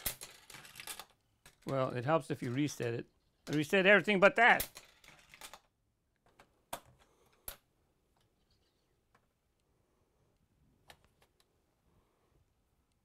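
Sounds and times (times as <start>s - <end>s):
plastic marble-run parts clicking: 0.0s - 7.6s.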